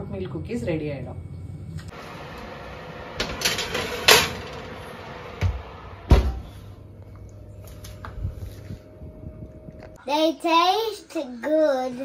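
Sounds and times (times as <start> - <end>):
oven door shutting: 2.1 - 6.7
metal tray scraping wire rack: 3.2 - 4.8.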